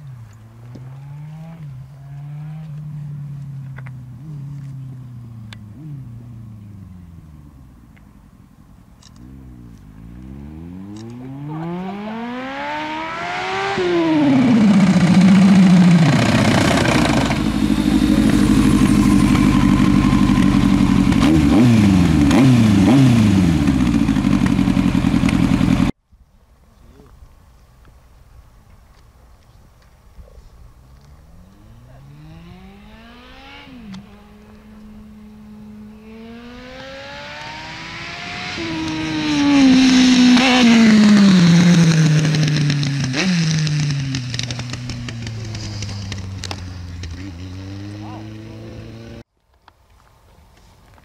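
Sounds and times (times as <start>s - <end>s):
motorcycle engine accelerating: 0.0s - 8.4s, 9.0s - 26.0s, 30.7s - 49.3s
motorcycle throttle blips: 9.0s - 25.9s, 30.8s - 49.2s.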